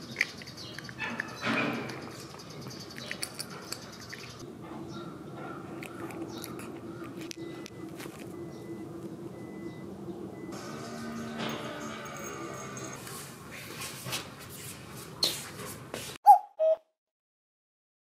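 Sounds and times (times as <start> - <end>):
cat crunching dry kibble: 5.8 - 8.3.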